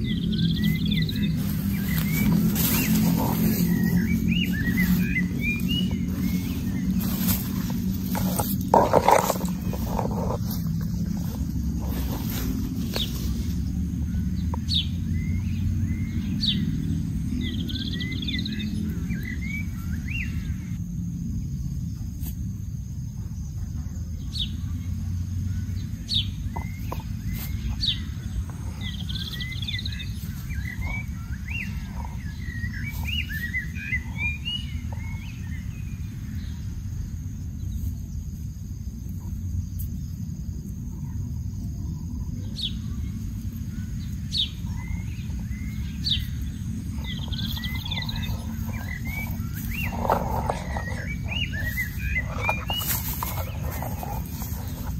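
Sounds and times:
small birds chirping: 0.0s - 54.9s
steady low rumble: 0.0s - 54.9s.

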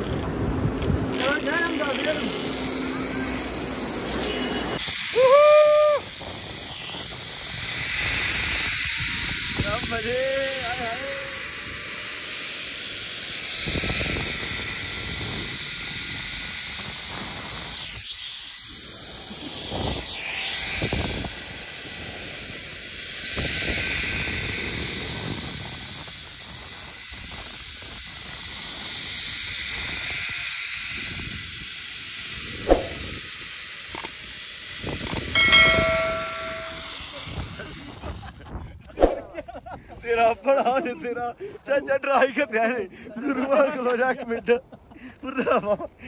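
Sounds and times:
wind gusting on microphone: 0.0s - 3.8s, 4.6s - 11.9s, 13.6s - 18.0s, 18.7s - 22.4s, 32.4s - 33.3s, 34.8s - 40.0s
zip line pulleys hissing on cable: 1.1s - 42.2s, 43.1s - 44.3s
short trolley squeal: 4.2s - 5.8s.

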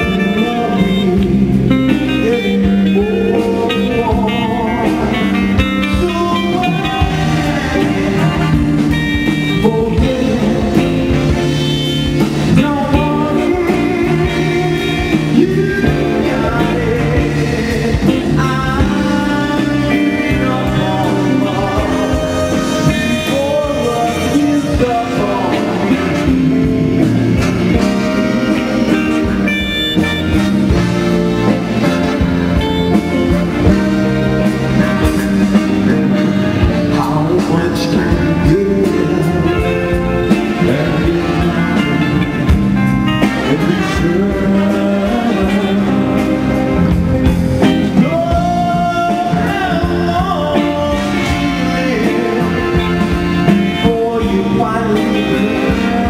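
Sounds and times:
live soul band playing: 0.0s - 56.0s
person singing lead vocal: 0.0s - 56.0s.

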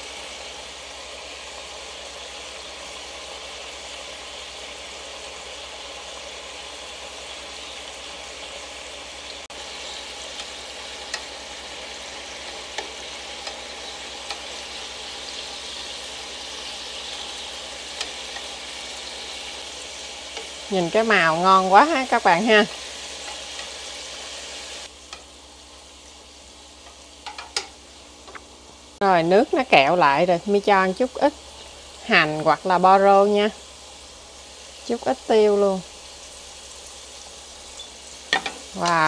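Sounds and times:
sauce sizzling and bubbling in pan: 0.0s - 39.0s
chopsticks clicking against pan: 10.4s - 11.3s, 12.7s - 13.6s, 14.2s - 14.5s, 18.0s - 18.5s.

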